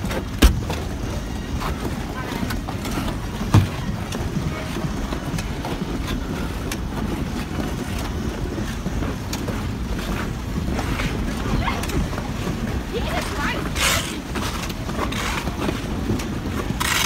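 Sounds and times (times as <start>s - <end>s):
skate blades scraping ice: 0.0s - 17.0s
thump: 0.4s - 0.7s.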